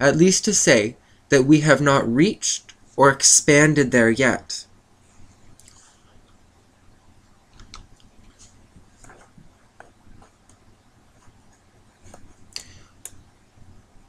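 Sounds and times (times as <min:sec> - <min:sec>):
room hiss: 0:00.0 - 0:14.0
faint clicks and ticks: 0:05.5 - 0:06.4, 0:07.5 - 0:13.3.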